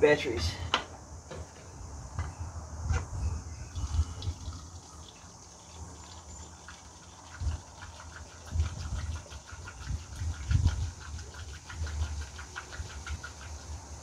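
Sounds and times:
fine liquid trickle: 0:03.7 - 0:14.0
petrol gurgling from a can: 0:03.7 - 0:14.0.

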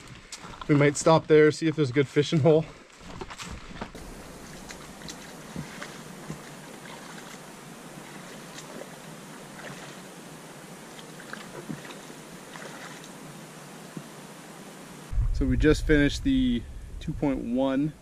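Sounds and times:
river running over rocks: 0:04.0 - 0:10.2.

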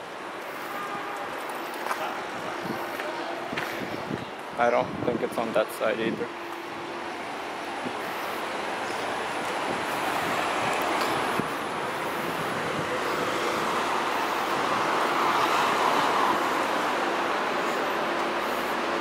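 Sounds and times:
passing vehicles rushing: 0:05.9 - 0:19.0.

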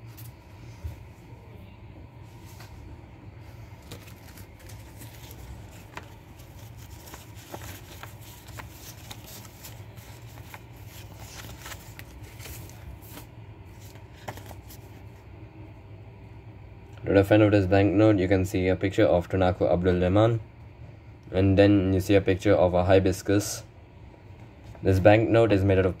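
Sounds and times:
banknotes crinkling: 0:03.4 - 0:15.2.

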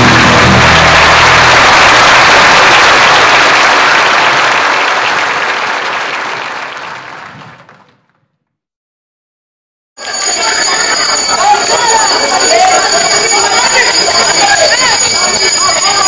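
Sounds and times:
music: 0:00.0 - 0:02.4
audience applauding: 0:00.0 - 0:08.0, 0:10.0 - 0:16.0.

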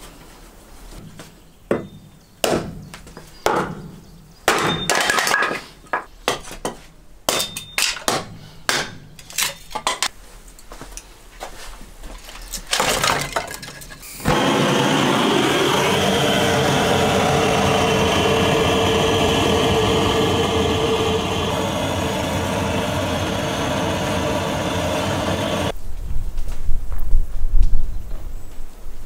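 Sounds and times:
gas torch hissing: 0:14.0 - 0:25.8.

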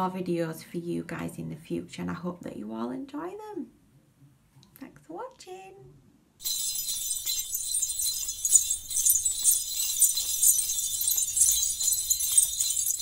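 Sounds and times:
jingle bells shaken rhythmically: 0:06.4 - 0:13.0.

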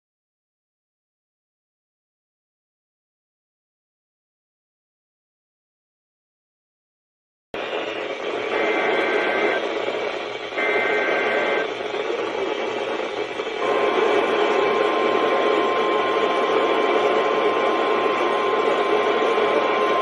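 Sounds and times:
radio hiss: 0:07.6 - 0:20.0
steady warning alarm tone: 0:07.6 - 0:20.0
warbling data burst: 0:07.6 - 0:20.0.

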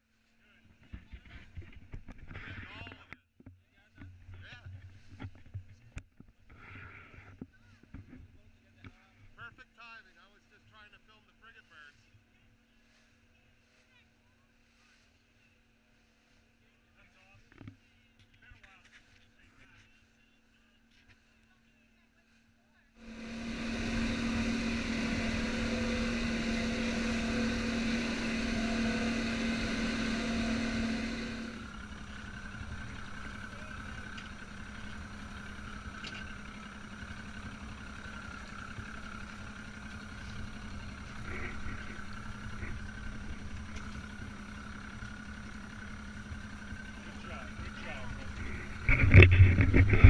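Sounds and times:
outboard motor running: 0:23.0 - 0:50.0.

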